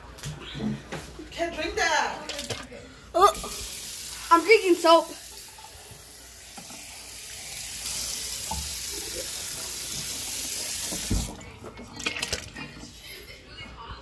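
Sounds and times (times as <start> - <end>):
tap water running: 3.2 - 12.5.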